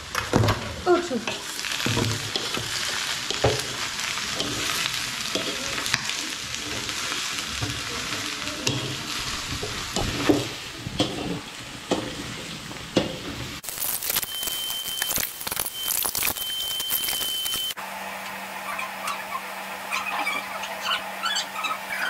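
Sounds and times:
vegetables sizzling in a wok: 0:00.0 - 0:22.0
wooden spatula scraping a pan: 0:00.5 - 0:13.6.

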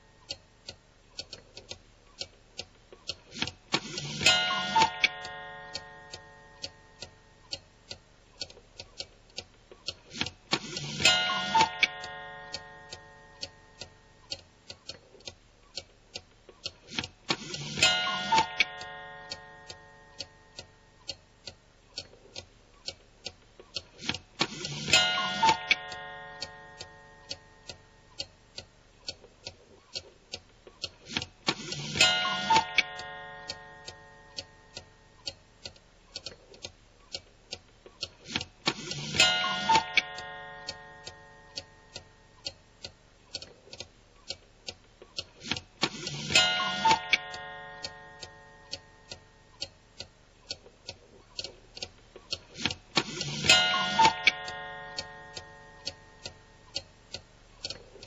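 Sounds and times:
clock ticking: 0:00.0 - 0:58.0
ringing chime: 0:04.3 - 0:06.4, 0:11.1 - 0:13.3, 0:17.8 - 0:20.1, 0:25.0 - 0:27.3, 0:32.0 - 0:34.6, 0:39.2 - 0:41.5, 0:46.3 - 0:48.7, 0:53.4 - 0:56.6.

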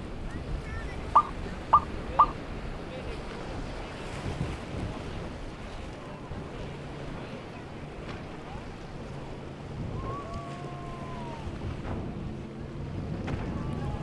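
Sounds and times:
boat engine humming: 0:00.0 - 0:14.0
water rushing off hull: 0:00.0 - 0:14.0
wind buffeting microphone: 0:00.0 - 0:14.0
faint whistle-like tone: 0:01.2 - 0:02.4.

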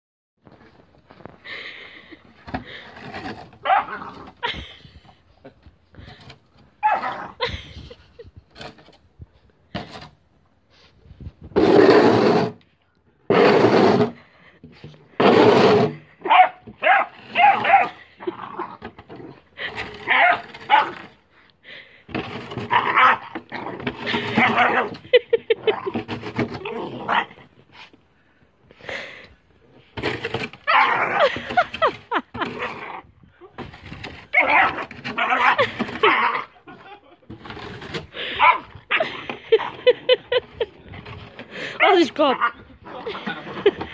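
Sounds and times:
shovel scraping gravelly dirt: 0:11.6 - 0:12.6, 0:13.3 - 0:14.2, 0:15.2 - 0:18.0, 0:29.9 - 0:33.0, 0:33.6 - 0:36.5
puppy growling and yipping: 0:22.7 - 0:25.0, 0:30.7 - 0:31.4, 0:34.3 - 0:36.6.

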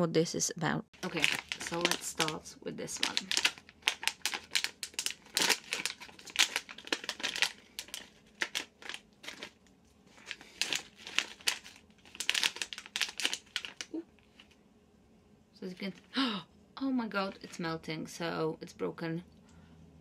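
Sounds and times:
plastic wrapper crinkling: 0:01.0 - 0:14.6.

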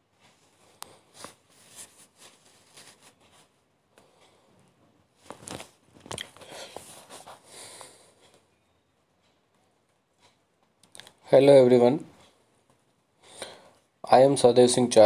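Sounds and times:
handling clicks and rustles: 0:05.2 - 0:07.4.

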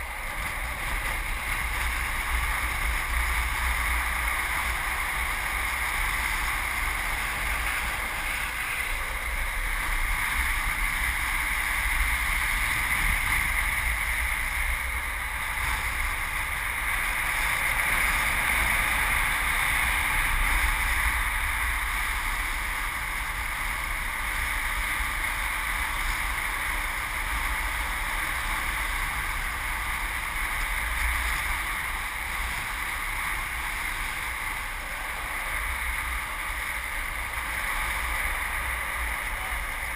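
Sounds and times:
skateboard wheels rolling on asphalt: 0:00.0 - 0:39.9
wind rush on microphone: 0:00.0 - 0:39.9.

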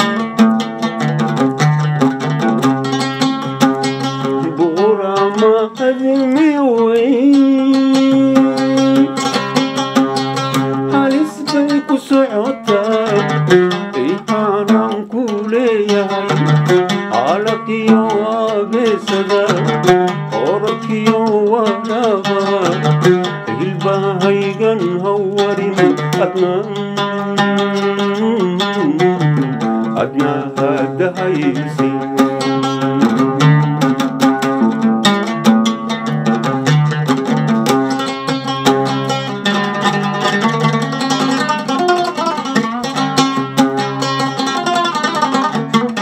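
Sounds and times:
oud plucked notes: 0:00.0 - 0:46.0
man singing: 0:04.0 - 0:09.8, 0:10.6 - 0:34.8.

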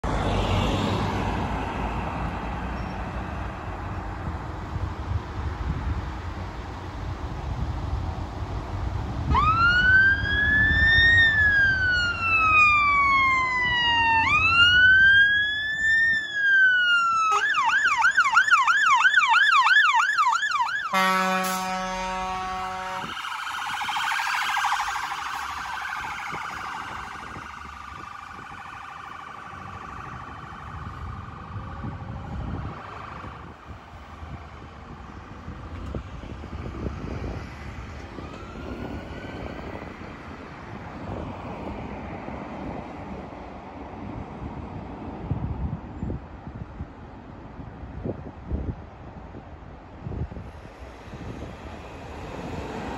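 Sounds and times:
traffic noise: 0:00.0 - 0:52.9
fire engine siren wailing and yelping: 0:09.3 - 0:35.2, 0:37.0 - 0:40.8
vehicle horn blast: 0:20.9 - 0:23.1.

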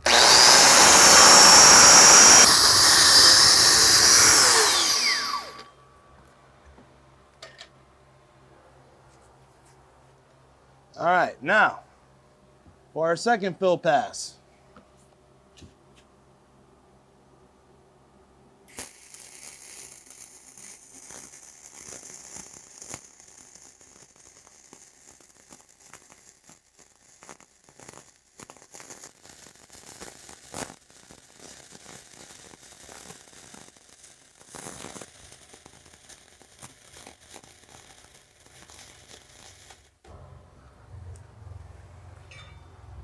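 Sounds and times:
welding arc crackling: 0:00.0 - 0:05.7, 0:18.7 - 0:40.2.

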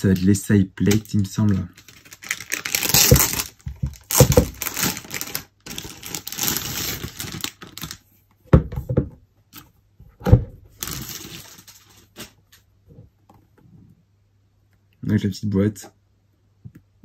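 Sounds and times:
cardboard packaging rustling and tearing: 0:00.9 - 0:08.0, 0:10.7 - 0:12.4.

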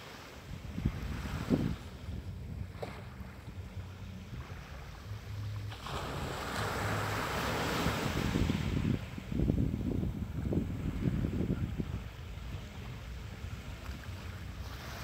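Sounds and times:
small waves breaking on beach: 0:00.0 - 0:15.0
wind rumble on microphone: 0:00.0 - 0:15.0.

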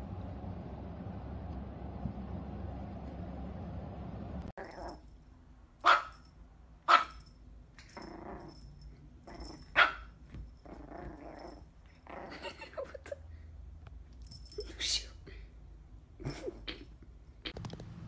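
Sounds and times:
puppy growling: 0:04.6 - 0:05.0, 0:07.9 - 0:09.9, 0:10.6 - 0:12.7
puppy yapping: 0:05.8 - 0:06.2, 0:06.9 - 0:07.2, 0:09.6 - 0:10.1.

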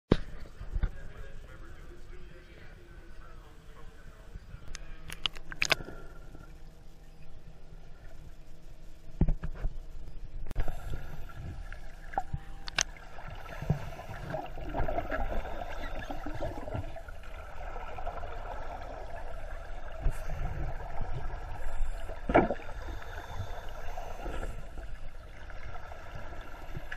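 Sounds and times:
steady low rumble: 0:00.2 - 0:26.9
underwater bubbles gurgling: 0:10.5 - 0:26.9.

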